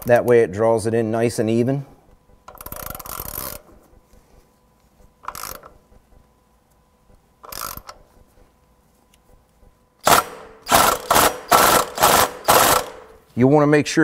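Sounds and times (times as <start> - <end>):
hand ratchet clicking: 2.4 - 3.7, 5.2 - 5.8, 7.4 - 8.1, 10.0 - 13.1.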